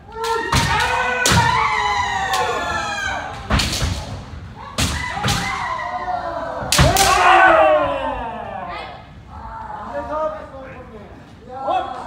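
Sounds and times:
people shouting: 0.0 - 9.7
bamboo sword strikes cracking: 6.7 - 7.2.

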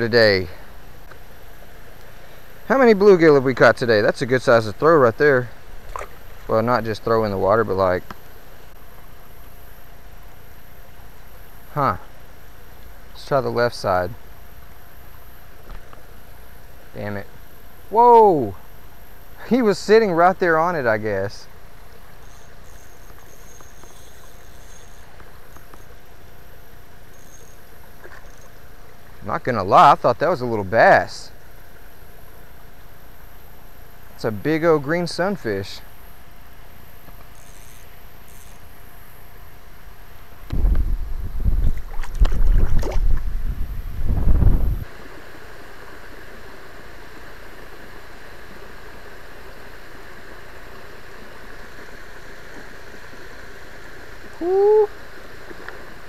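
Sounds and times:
faint ticks: 22.2 - 26.1.

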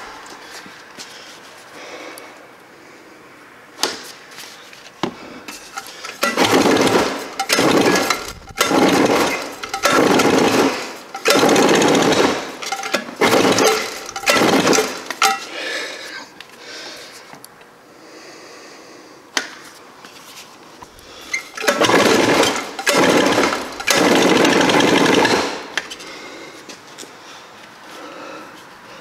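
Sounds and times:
two-stroke engine firing in bursts: 5.8 - 15.4, 21.3 - 25.8.

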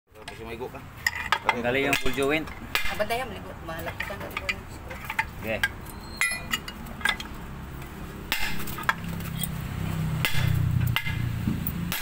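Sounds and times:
hammer striking metal: 6.2 - 7.2, 8.3 - 9.0, 10.2 - 12.0.

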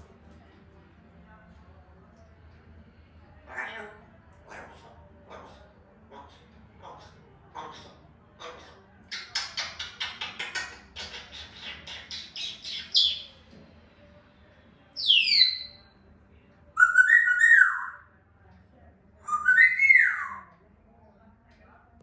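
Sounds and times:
parrot raspy chattering: 3.5 - 13.3, 15.0 - 15.8, 16.8 - 18.0, 19.2 - 20.5
parrot whistling: 15.0 - 15.8, 16.8 - 18.0, 19.3 - 20.5.

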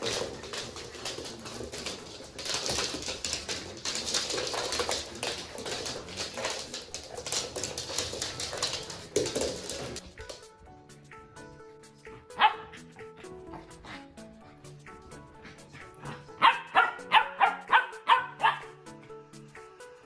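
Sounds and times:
claws scrabbling on wooden floor: 0.0 - 10.5.

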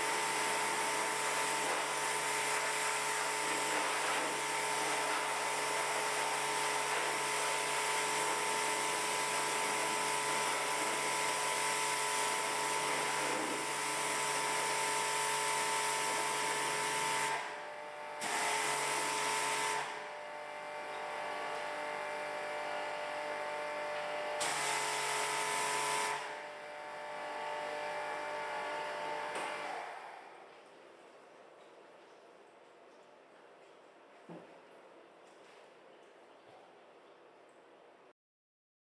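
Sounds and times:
pressure washer motor hum: 0.0 - 30.4.

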